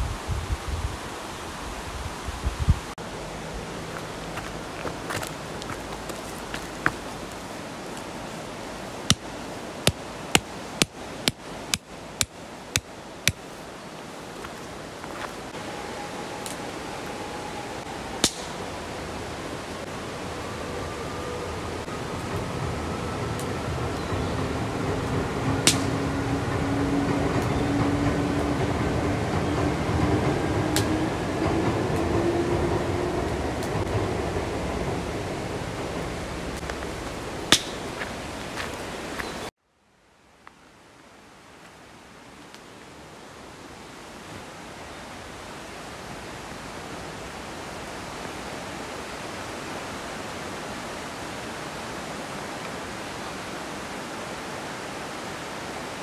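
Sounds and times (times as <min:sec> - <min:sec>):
steady background hiss: 0:00.0 - 0:26.6
rain rushing: 0:00.0 - 0:39.5, 0:40.2 - 0:56.0.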